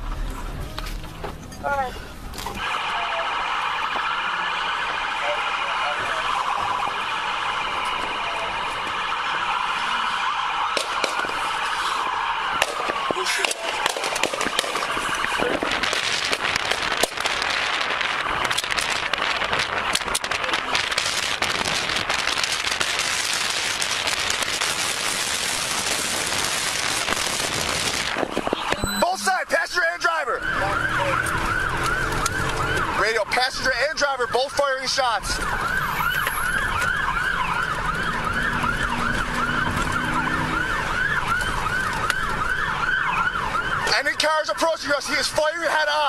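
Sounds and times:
road noise: 0:00.0 - 0:46.0
police siren yelping: 0:02.5 - 0:46.0
wind rushing over microphone: 0:14.1 - 0:28.8.

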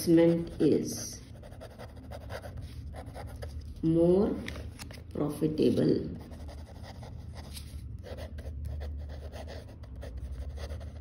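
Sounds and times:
pen scratching on paper: 0:00.0 - 0:03.8, 0:06.2 - 0:11.0
steady low hum: 0:00.0 - 0:11.0.

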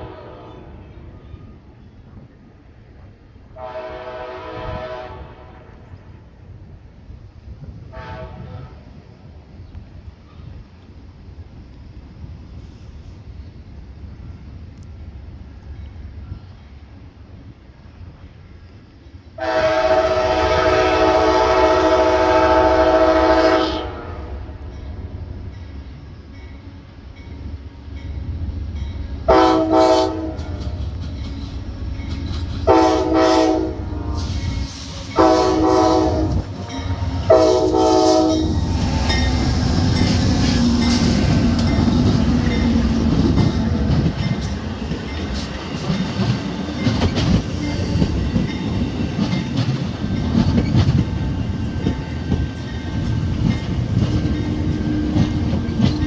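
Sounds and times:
locomotive horn blasts: 0:00.0 - 0:01.0, 0:03.6 - 0:05.8, 0:07.9 - 0:08.8, 0:19.4 - 0:24.5, 0:29.3 - 0:30.6, 0:32.7 - 0:34.5, 0:35.1 - 0:39.2
train rumbling past: 0:00.0 - 0:56.0
wheels clicking over rail joints: 0:30.2 - 0:32.9, 0:38.6 - 0:56.0.

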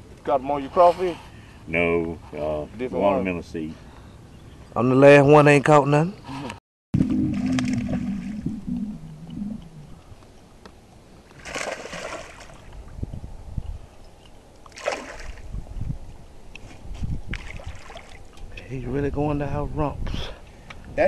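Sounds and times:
fish splashing at surface: 0:07.0 - 0:09.3, 0:11.3 - 0:12.8, 0:14.7 - 0:15.5, 0:17.3 - 0:18.4.

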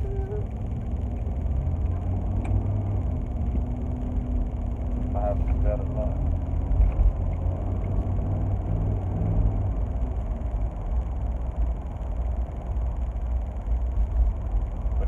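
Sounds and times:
car cabin road rumble: 0:00.0 - 0:15.0.

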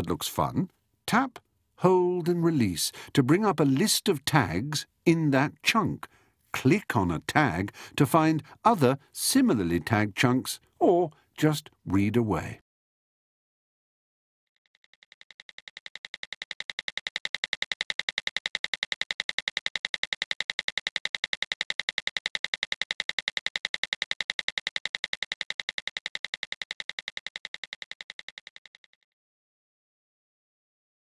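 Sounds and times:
rapid even ticking: 0:14.7 - 0:29.0.

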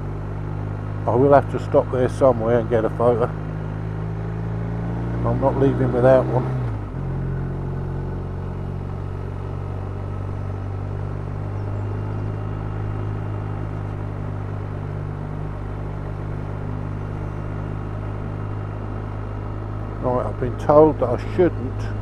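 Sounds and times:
motorcycle engine cruising: 0:00.0 - 0:22.0.

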